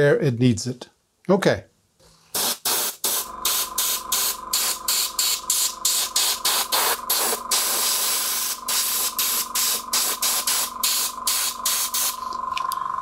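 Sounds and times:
compressed air blasts hissing: 2.3s - 12.3s.

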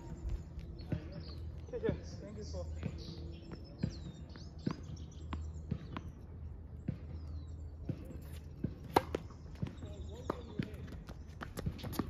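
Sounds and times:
tennis ball bouncing: 2.8s - 12.0s
racket hitting ball: 7.9s - 10.7s.

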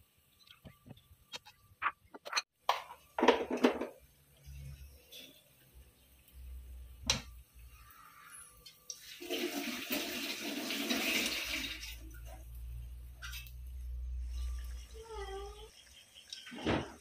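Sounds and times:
sauce sizzling in a wok: 4.0s - 16.5s.

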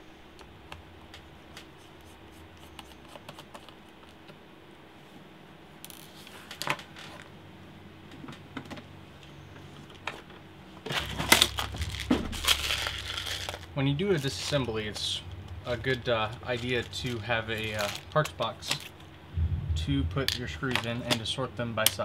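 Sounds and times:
plastic parts box rattling: 10.9s - 14.7s, 16.5s - 18.9s.

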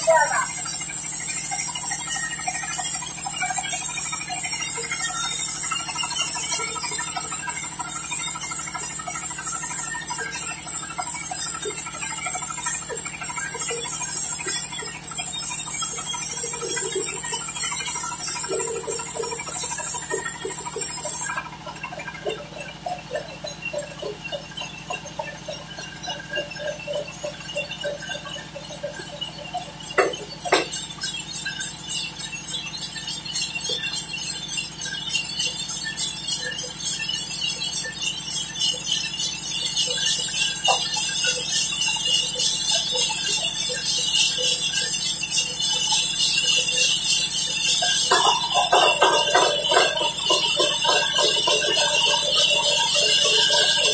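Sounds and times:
saw blade rattling hiss: 0.0s - 21.4s, 40.5s - 53.9s
band saw motor hum: 37.2s - 53.9s.

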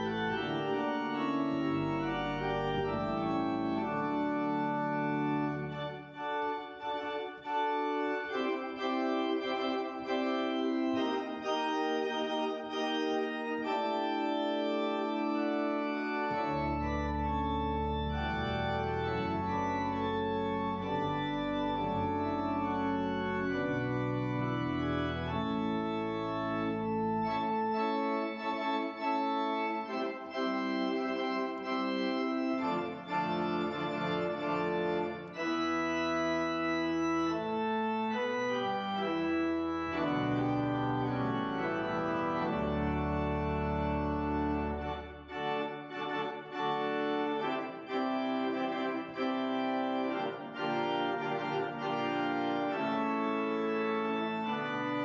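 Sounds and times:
deep organ bass notes: 0.0s - 55.0s
organ chords: 0.0s - 55.0s.

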